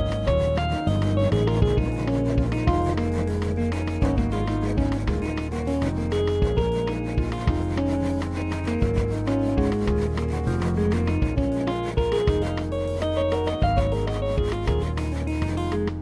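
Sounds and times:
background music with bass: 0.0 - 16.0
hand saw rasping into wood: 0.5 - 13.8.

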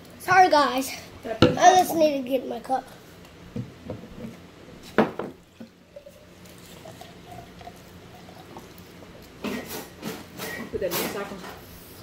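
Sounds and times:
liquid pouring into plastic cup: 5.4 - 9.5.

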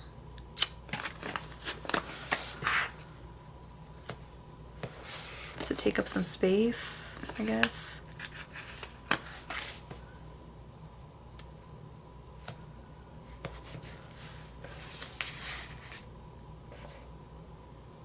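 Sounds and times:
faint steady hum: 0.0 - 18.0
paper rustle: 0.9 - 3.0, 7.2 - 10.0, 13.5 - 16.1.

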